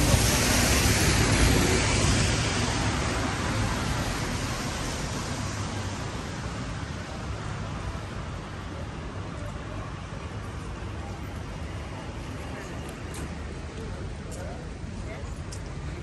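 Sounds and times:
bus passing on wet road: 0.0 - 16.0
street traffic: 0.0 - 16.0.

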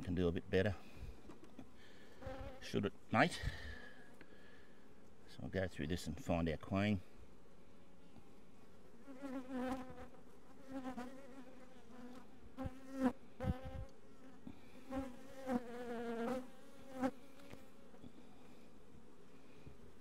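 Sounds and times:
honey bees buzzing: 8.8 - 20.0.

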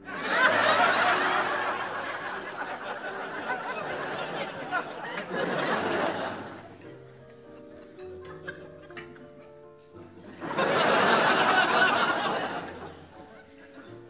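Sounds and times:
audience laughing: 0.0 - 9.4, 10.2 - 14.0.

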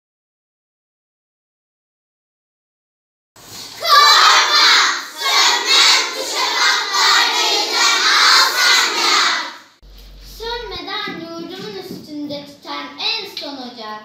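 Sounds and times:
children chanting in unison: 3.8 - 9.8.

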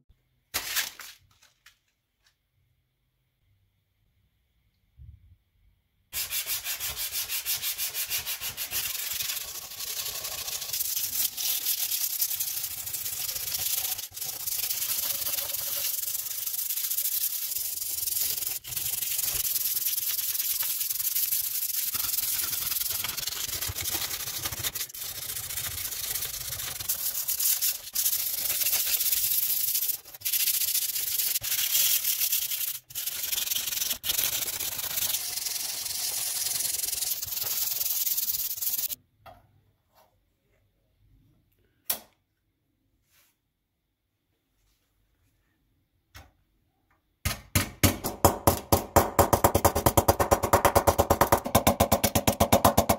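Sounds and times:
sandpaper rasping on steel: 6.2 - 39.0.

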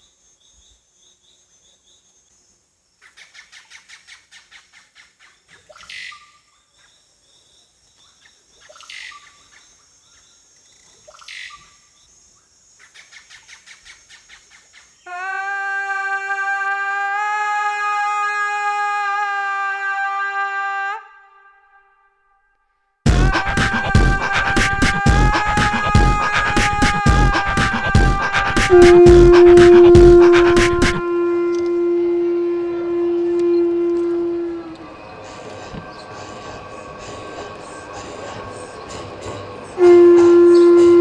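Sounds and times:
loud steady drone: 23.1 - 41.0
birds whistling: 33.4 - 39.8.

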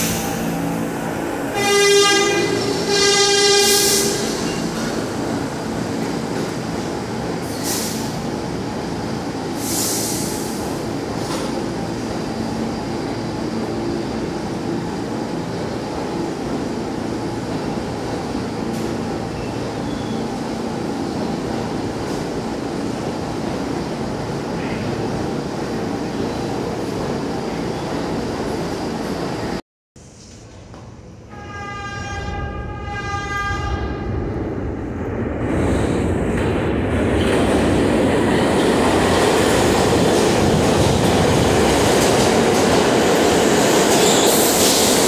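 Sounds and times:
train wheels rumbling on rails: 0.0 - 29.6, 32.1 - 45.0
train horn blast: 1.5 - 4.4, 31.2 - 34.2.

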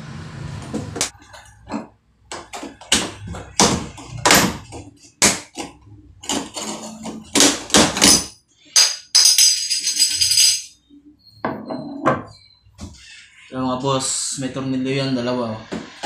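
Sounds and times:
bright metallic jingle: 8.2 - 10.8.

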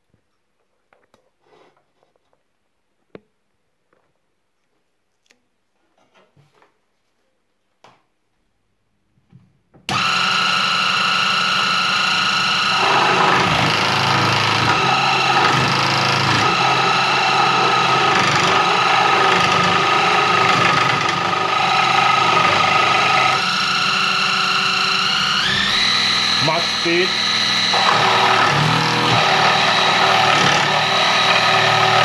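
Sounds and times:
power saw whining: 9.9 - 32.0
saw blade cutting wood: 9.9 - 32.0.

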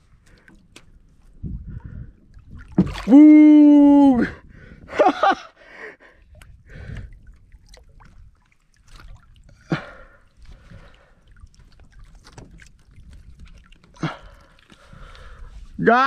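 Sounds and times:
small splashes and knocks: 0.0 - 1.4, 2.2 - 3.2, 6.2 - 15.8
water sloshing against boat: 0.0 - 15.9.

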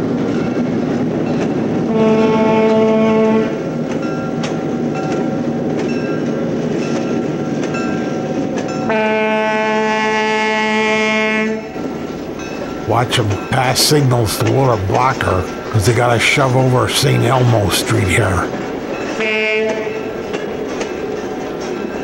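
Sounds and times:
locomotive horn blasts: 1.9 - 3.6, 8.9 - 11.7, 19.2 - 20.1
locomotive running: 11.6 - 22.0.

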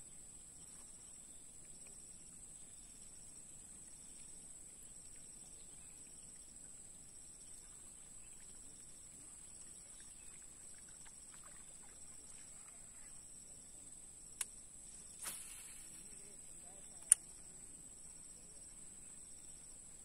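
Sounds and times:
sharp click: 17.0 - 17.4.

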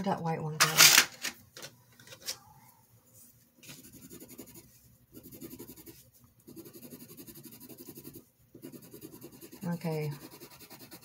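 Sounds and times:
colored pencil scratching on paper: 3.6 - 11.0.

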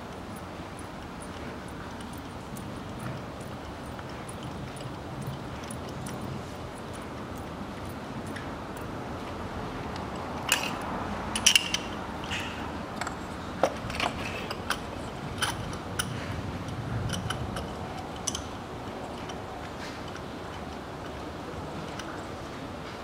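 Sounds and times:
metal clicks: 9.9 - 21.2.

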